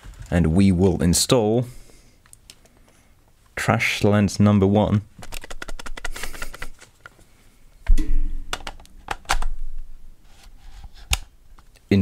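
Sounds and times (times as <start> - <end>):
small plastic ticks and clicks: 5.2 - 7.2.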